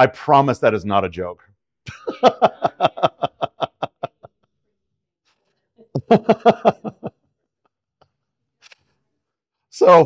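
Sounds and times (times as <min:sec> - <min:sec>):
man laughing heartily: 0:01.9 - 0:04.4, 0:06.0 - 0:07.2.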